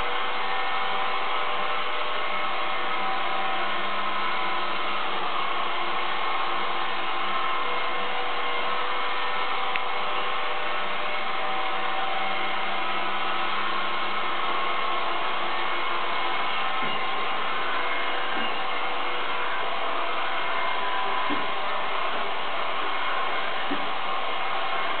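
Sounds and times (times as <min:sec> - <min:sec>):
low hum: 0:00.0 - 0:25.0
robot vacuum cleaner whirring: 0:11.2 - 0:25.0.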